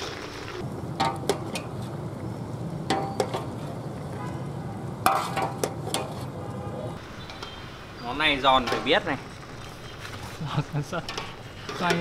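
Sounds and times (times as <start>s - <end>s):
steady hiss: 7.0s - 12.0s.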